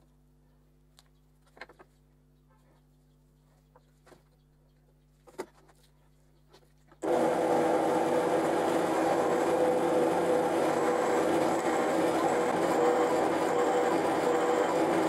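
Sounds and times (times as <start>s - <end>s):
drill press running: 7.0s - 15.0s.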